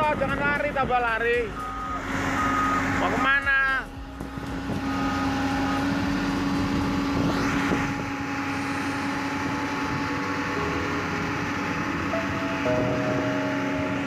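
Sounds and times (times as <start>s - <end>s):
excavator diesel engine under load: 0.0s - 14.0s
rising whine: 1.5s - 14.0s.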